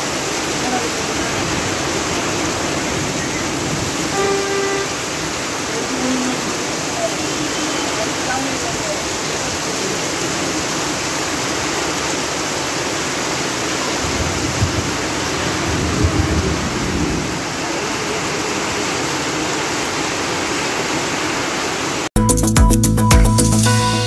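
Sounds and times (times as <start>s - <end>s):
water running off awning: 0.0s - 22.1s
heavy rain on awning: 0.0s - 22.2s.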